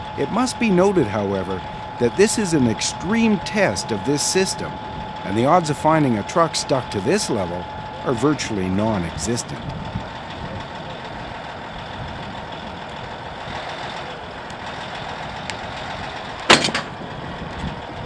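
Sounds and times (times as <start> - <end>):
bulldozer diesel engine running: 0.0 - 18.0
loud bang with rattle: 16.4 - 17.1.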